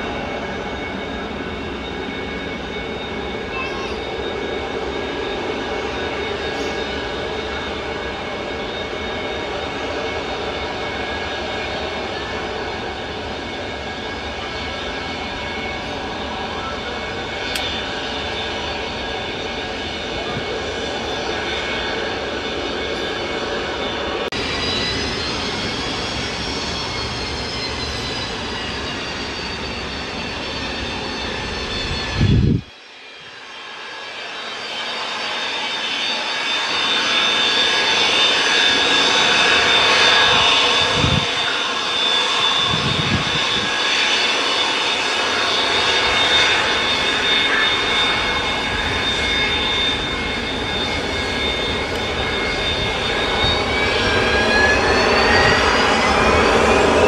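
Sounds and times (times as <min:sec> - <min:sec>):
jet engines roaring and whining: 0:00.0 - 0:57.0.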